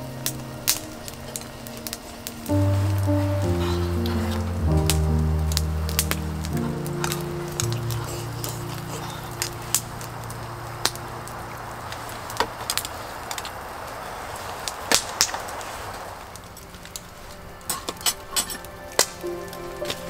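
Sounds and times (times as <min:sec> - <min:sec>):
wood fire crackling and popping: 0:00.0 - 0:20.0
utensils clinking on steel bowls: 0:17.7 - 0:18.7.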